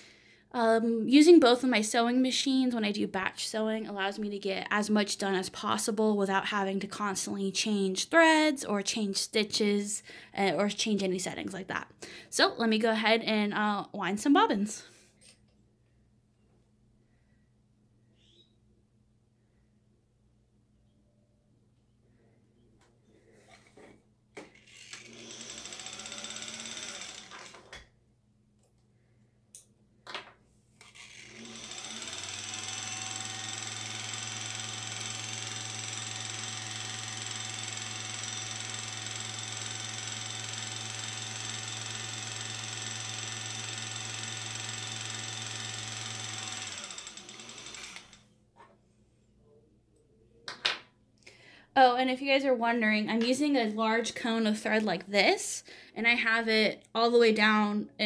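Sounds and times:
sewing machine motor winding: 24.4s - 27.7s, 30.8s - 48.3s
sewing machine clicks: 35.3s - 48.2s.

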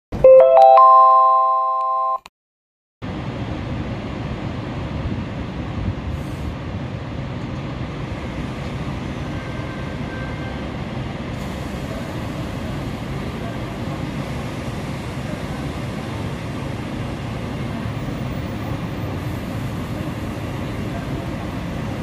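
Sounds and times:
chiming logo jingle: 0.3s - 2.2s.

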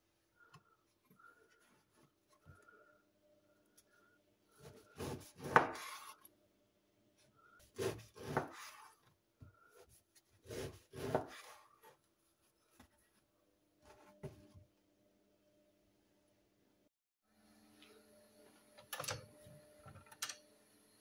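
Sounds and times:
knife sawing through crusty bread: 7.7s - 9.0s, 10.4s - 11.9s.

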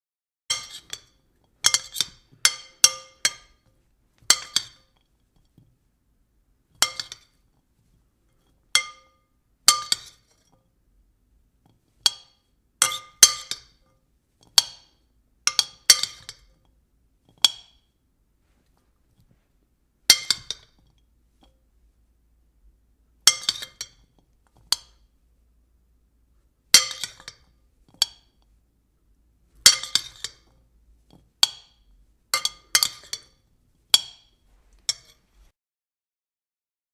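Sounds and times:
spoon clinking on a bowl: 0.5s - 5.0s, 6.8s - 7.4s, 8.8s - 10.7s, 12.0s - 16.5s, 23.3s - 25.0s, 26.8s - 28.4s, 29.6s - 33.4s, 34.0s - 35.2s.

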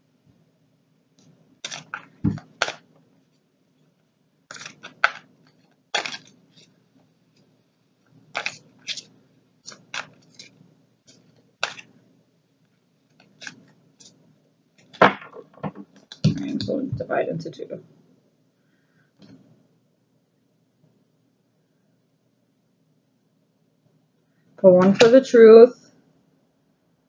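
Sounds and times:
cards being shuffled: 1.6s - 2.9s, 4.5s - 6.7s, 8.3s - 12.0s, 13.1s - 14.2s, 14.8s - 16.9s.

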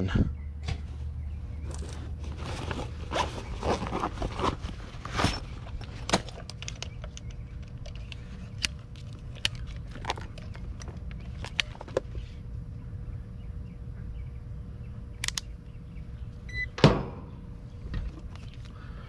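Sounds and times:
rustling and scraping in tool case: 1.6s - 12.4s
light clicks of handled meter: 6.4s - 11.7s, 15.2s - 15.5s.

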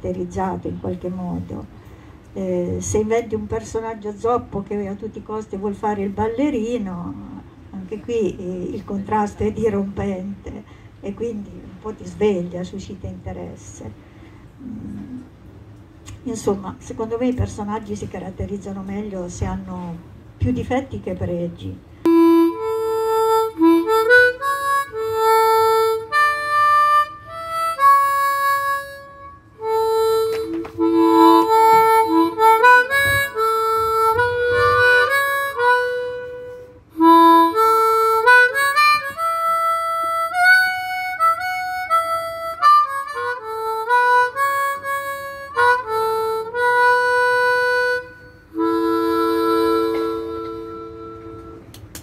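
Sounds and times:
harmonica slow melody: 22.0s - 51.8s.

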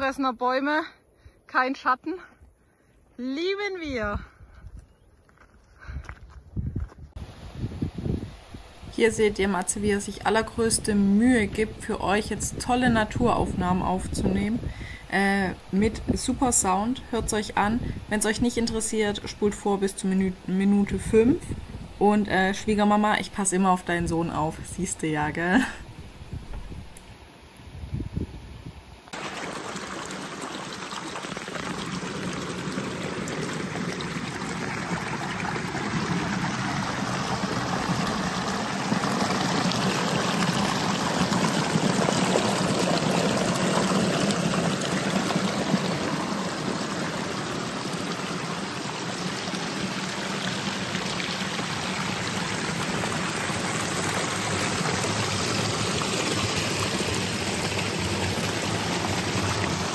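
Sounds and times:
brook splashing over rocks: 29.1s - 59.9s
cascade pouring between rocks: 29.2s - 59.9s.

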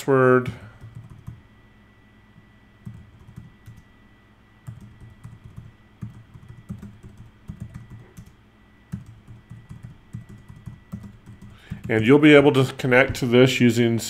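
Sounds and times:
keyboard typing: 0.8s - 1.4s, 2.8s - 3.9s, 4.6s - 12.0s.

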